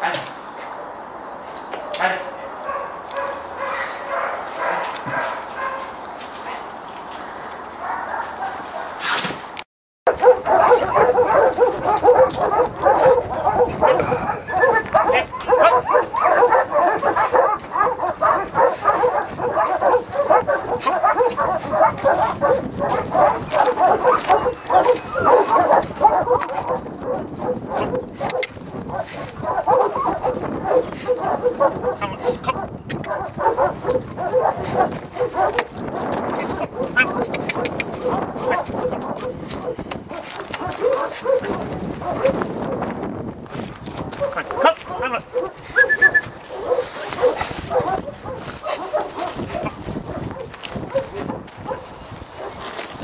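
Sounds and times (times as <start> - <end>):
footsteps on gravel: 2.7 - 9.4, 10.1 - 53.0
dog whining and yipping: 13.0 - 17.9, 23.2 - 26.4.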